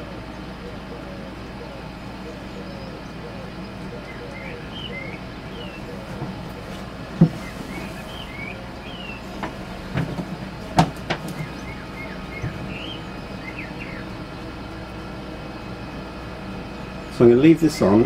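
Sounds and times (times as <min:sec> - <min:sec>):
air heater mechanical hum: 0:00.0 - 0:18.0
sharp knocks: 0:09.4 - 0:11.6.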